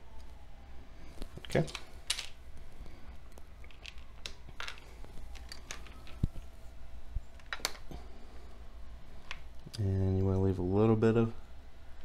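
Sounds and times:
plastic parts clicking: 3.6 - 6.3, 7.4 - 7.9.

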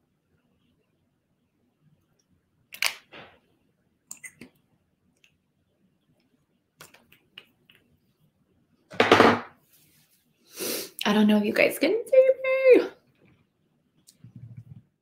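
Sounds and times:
lip smacks and mouth clicks: 6.8 - 7.9.

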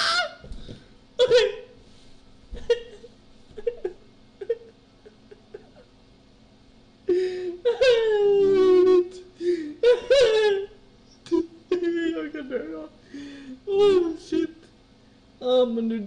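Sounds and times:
man laughing helplessly: 2.6 - 6.0, 9.5 - 10.7.

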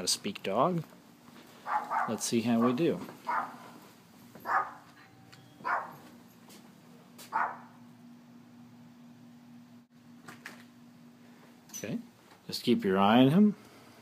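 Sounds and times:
dog barking: 1.6 - 3.8, 4.4 - 5.0, 5.6 - 6.0, 7.3 - 7.8.

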